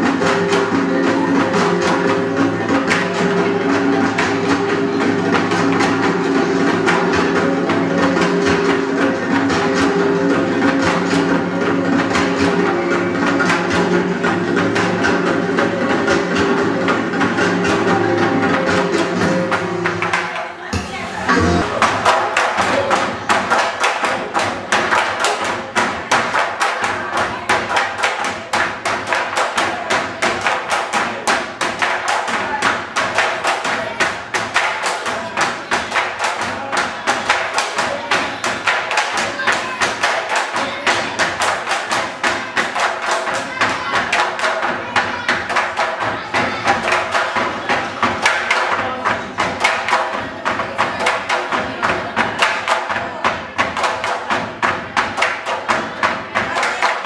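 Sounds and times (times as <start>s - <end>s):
bamboo poles knocking: 21.6s - 57.0s.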